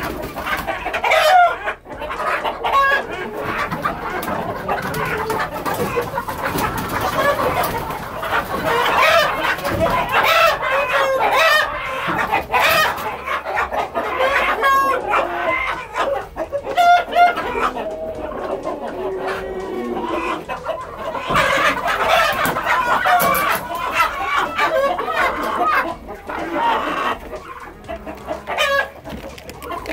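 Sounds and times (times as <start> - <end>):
chickens clucking and squawking: 0.0 - 29.9
roosters crowing: 0.0 - 29.9.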